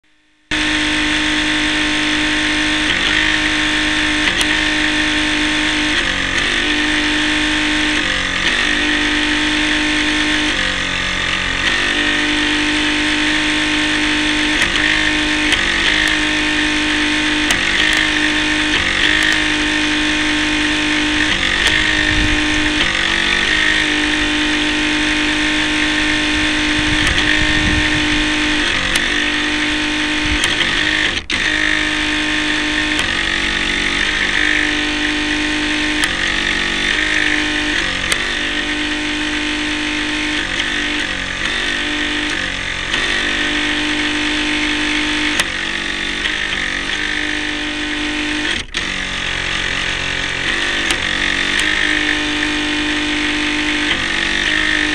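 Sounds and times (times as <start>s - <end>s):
model boat motor running: 0.5s - 54.9s.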